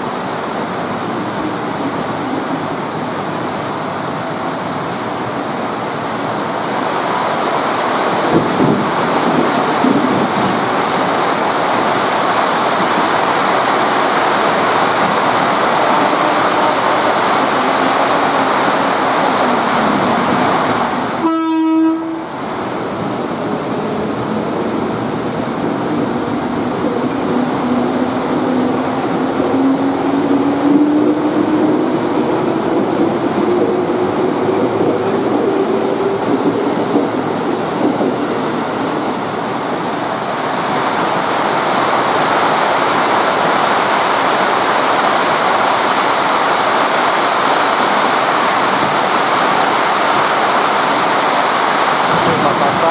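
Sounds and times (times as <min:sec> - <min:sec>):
pouring rain hiss: 0:00.0 - 0:52.9
train horn note: 0:15.8 - 0:18.5, 0:21.2 - 0:22.4.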